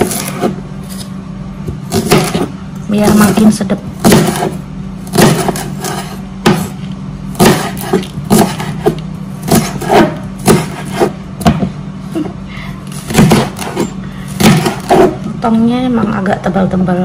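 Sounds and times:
knife slicing leek: 0:00.0 - 0:01.2, 0:01.8 - 0:03.4, 0:04.0 - 0:11.2
steady low hum: 0:00.0 - 0:17.0.

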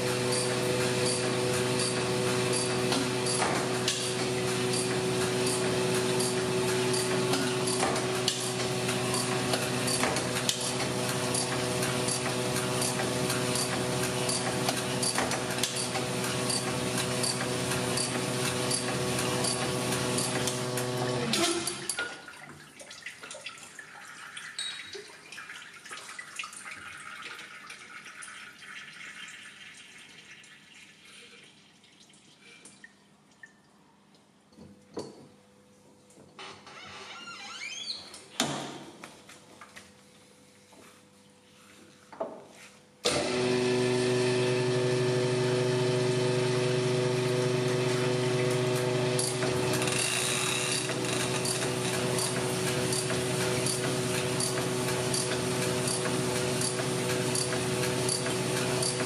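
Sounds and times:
oil trickling and dripping: 0:21.9 - 0:34.3.

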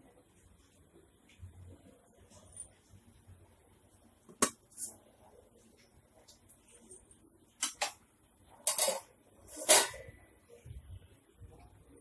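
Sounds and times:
metal utensil clinking on steel dishes: 0:08.6 - 0:10.1.

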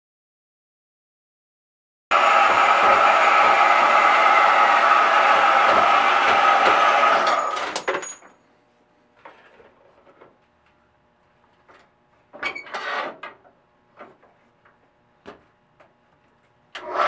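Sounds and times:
band saw running: 0:02.1 - 0:07.9.

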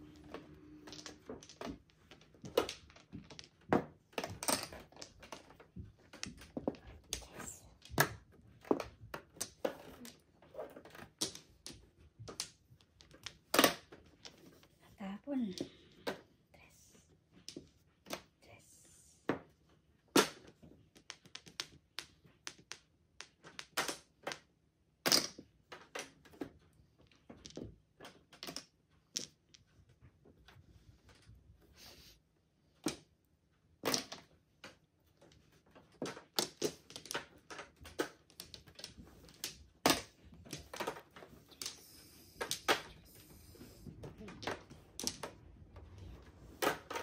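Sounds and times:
mahjong tiles clicking on table: 0:00.0 - 0:14.7, 0:20.2 - 0:29.8, 0:33.8 - 0:47.0.

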